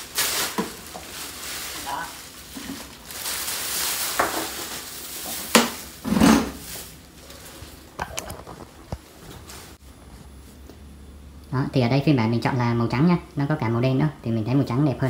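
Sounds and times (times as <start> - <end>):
plastic packaging rustling: 0.0 - 9.8.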